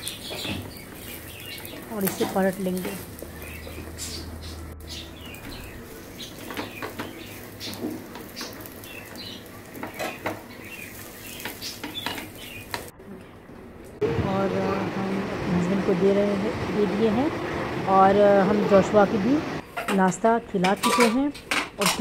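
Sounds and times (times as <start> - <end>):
bread frying in butter: 0.0 - 12.9
spatula scraping and tapping pan: 11.4 - 12.9.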